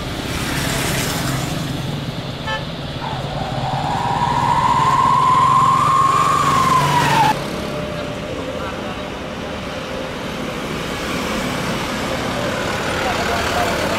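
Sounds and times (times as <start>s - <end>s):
jet engines at take-off power: 0.0s - 10.8s.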